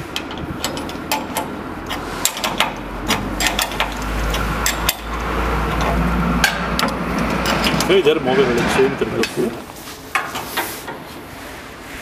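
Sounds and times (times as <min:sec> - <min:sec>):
metal clicks and taps: 0:00.2 - 0:07.9.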